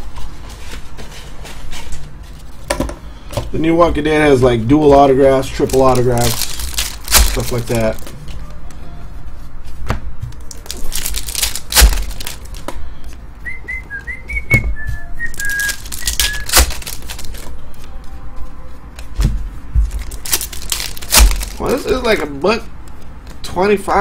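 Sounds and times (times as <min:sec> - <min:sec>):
trading cards flicked and shuffled: 0:05.5 - 0:08.5, 0:10.3 - 0:12.8, 0:15.3 - 0:17.6
person whistling a tune: 0:13.4 - 0:16.6.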